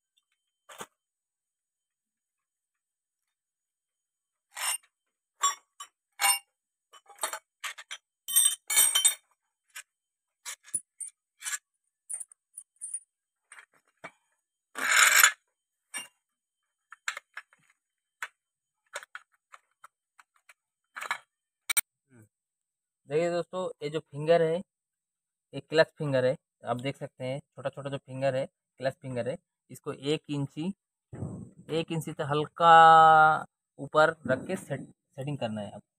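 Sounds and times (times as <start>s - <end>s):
metal tools clinking: 4.6s - 9.4s.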